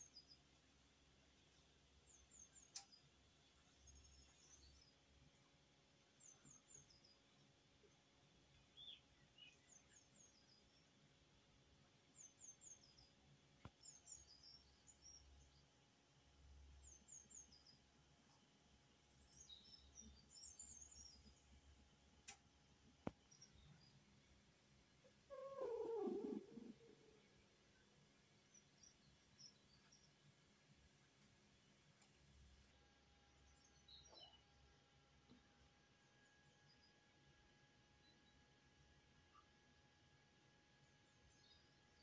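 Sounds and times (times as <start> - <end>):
faint bird chirps: 1.5 - 11.2, 24.9 - 31.0, 32.4 - 37.2, 39.2 - 39.7
cat purring: 25.1 - 27.4.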